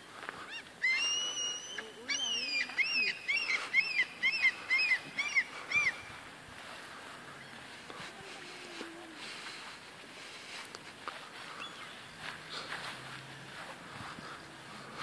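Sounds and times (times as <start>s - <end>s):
high animal calls: 0.4s - 6.3s.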